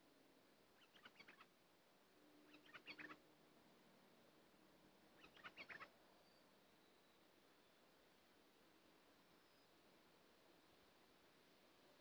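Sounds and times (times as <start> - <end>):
bird chirping: 0.8 - 1.5, 2.4 - 3.2, 5.2 - 7.2.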